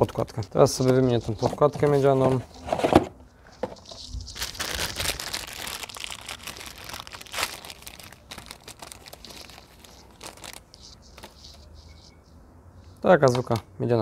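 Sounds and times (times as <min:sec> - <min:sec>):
plastic bag crinkling: 0:03.6 - 0:11.9.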